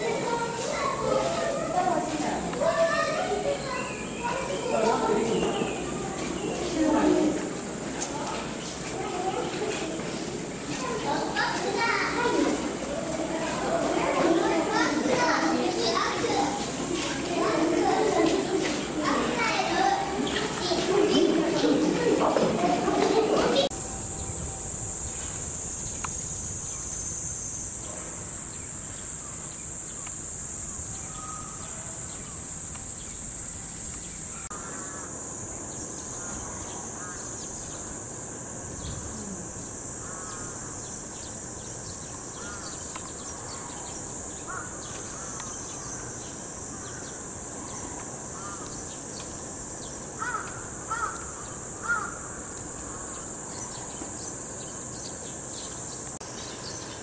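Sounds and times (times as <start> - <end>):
cicada chorus droning: 0.0 - 57.0
bird chirps: 3.5 - 6.8, 30.8 - 33.2.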